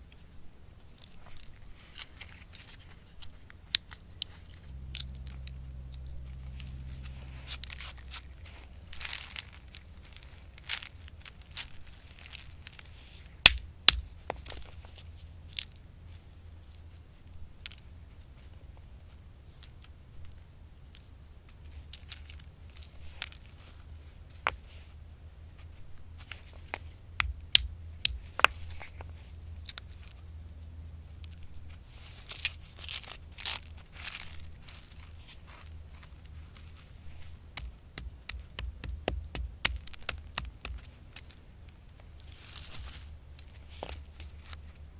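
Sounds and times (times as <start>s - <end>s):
crackly rustling: 0.0s - 44.9s
stone pestle knocking on rock: 13.5s - 14.1s, 37.6s - 40.8s
acorns knocking on stone: 13.5s - 14.6s, 27.2s - 28.7s, 37.6s - 40.9s.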